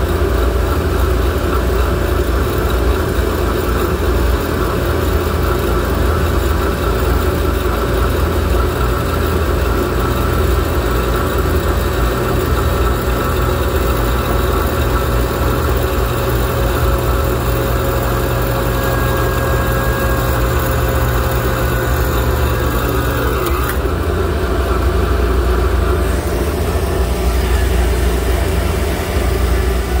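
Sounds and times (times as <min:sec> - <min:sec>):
alternator whine: 0:00.0 - 0:30.0
steady machine hum: 0:00.0 - 0:30.0.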